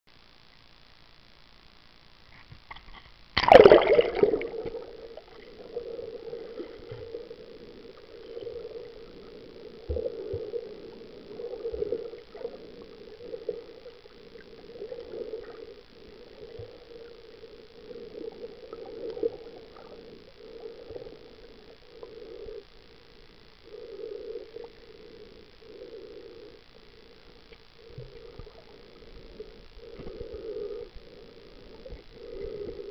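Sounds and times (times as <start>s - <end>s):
sharp water splash: 3.4s - 4.6s
muffled underwater rushing: 3.4s - 23.0s.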